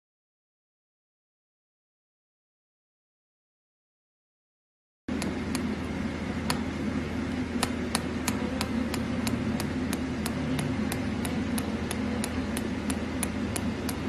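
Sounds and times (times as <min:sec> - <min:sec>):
laser unit humming: 0:05.1 - 0:14.0.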